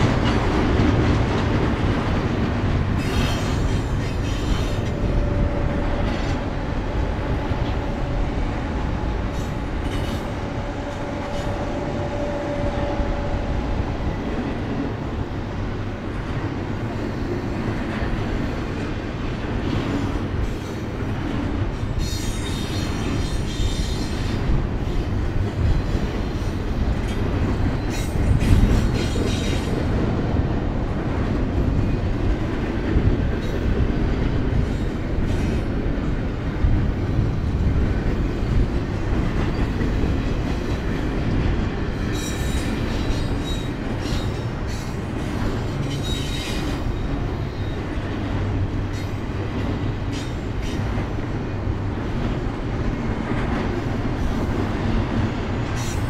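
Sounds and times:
train wheels rumbling on rail: 0:00.0 - 0:56.0
high wheel squeal: 0:45.8 - 0:47.8.

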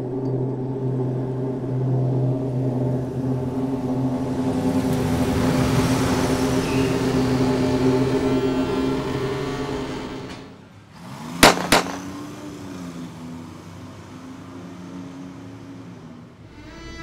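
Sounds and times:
low sustained score drone: 0:00.0 - 0:10.2
shotgun racking clacks: 0:11.4 - 0:12.1.

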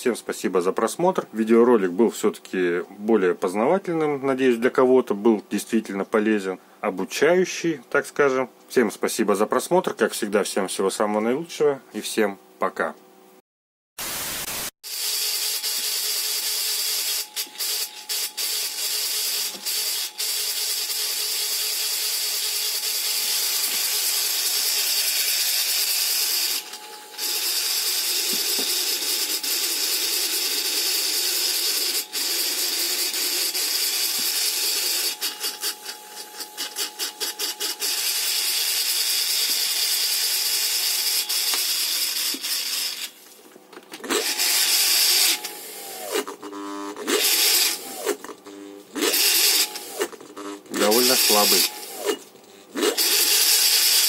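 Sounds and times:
electric motor rattling and humming: 0:14.9 - 0:43.2, 0:43.9 - 0:54.0.

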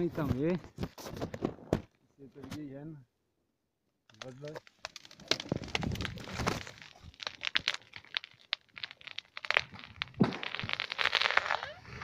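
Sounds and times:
twigs cracking underfoot: 0:04.1 - 0:11.6.

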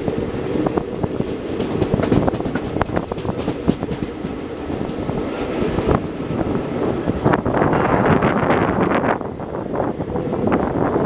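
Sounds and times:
train running rumble: 0:00.0 - 0:11.0
wheels clattering over track: 0:01.1 - 0:06.0.

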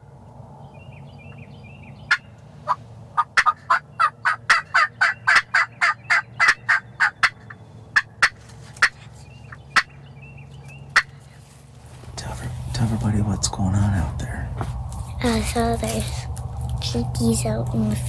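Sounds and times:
turkey calling: 0:01.9 - 0:11.6.

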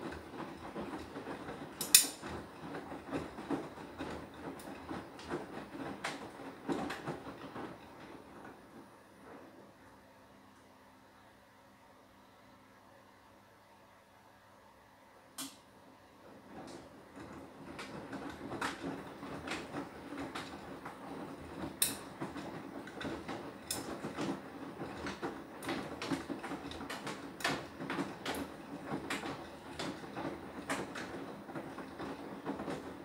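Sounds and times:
washing machine drum swishing: 0:00.0 - 0:09.8, 0:16.0 - 0:33.0
laundry knocking in drum: 0:16.6 - 0:33.0.

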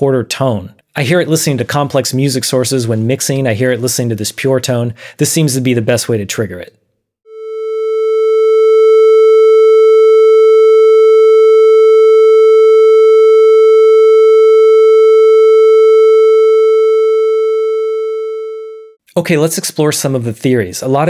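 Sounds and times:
electronic test tone: 0:07.3 - 0:19.0.

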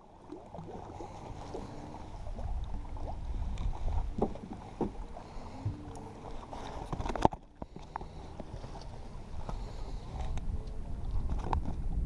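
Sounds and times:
water slapping against boat hull: 0:03.0 - 0:09.7
knocks on boat: 0:04.1 - 0:05.0.

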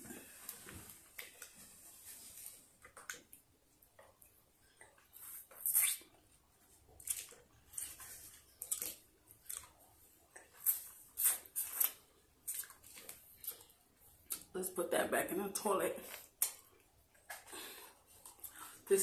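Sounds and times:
mouth sucking and licking lollipop: 0:04.2 - 0:06.4, 0:07.0 - 0:14.5.

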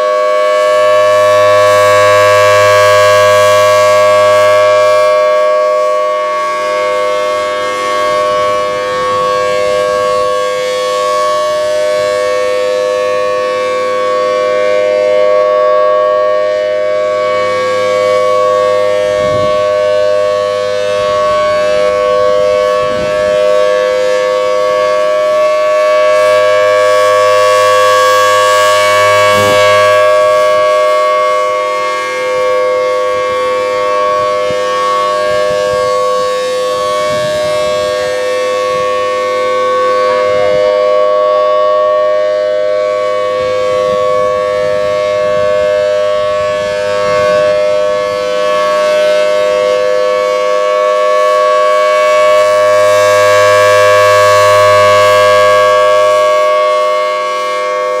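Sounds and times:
rotating siren steady tone: 0:00.0 - 0:58.0.

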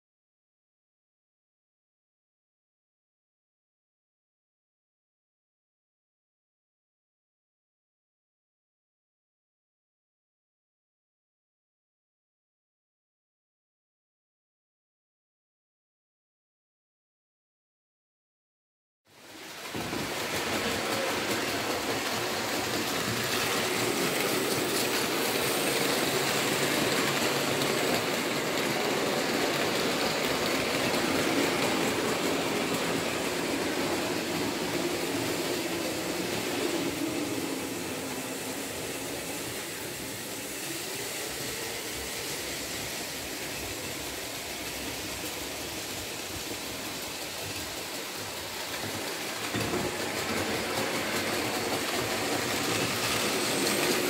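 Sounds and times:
model train motor hum: 0:19.2 - 0:54.0
model train rolling rattle: 0:19.2 - 0:54.0.

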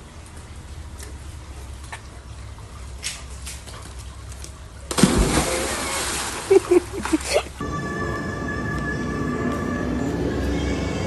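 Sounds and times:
water churning: 0:00.7 - 0:07.6
large splash into pool: 0:04.9 - 0:07.2.

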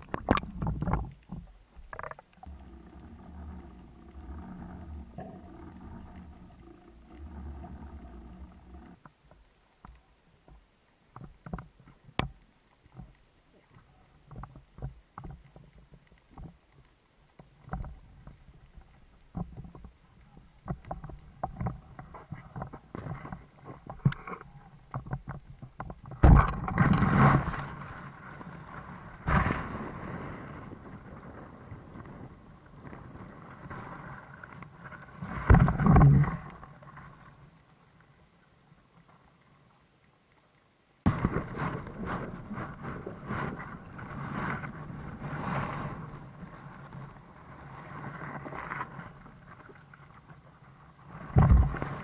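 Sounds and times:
underwater rushing noise: 0:00.0 - 0:09.1, 0:26.1 - 0:37.7, 0:41.0 - 0:52.0
underwater clicks and crackles: 0:00.0 - 0:52.0.

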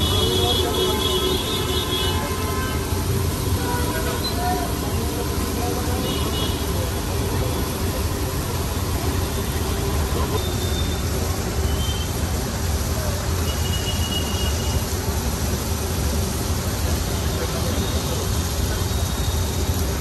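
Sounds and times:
faint voices: 0:00.0 - 0:10.5
traffic rumble with hiss: 0:00.0 - 0:20.0.

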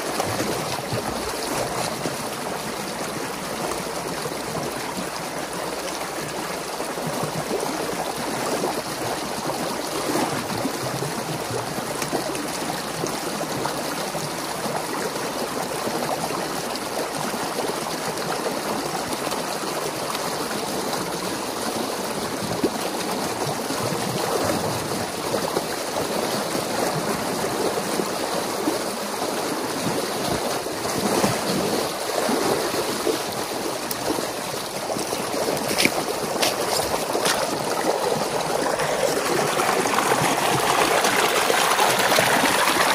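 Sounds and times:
water gushing through gap: 0:23.2 - 0:42.9.

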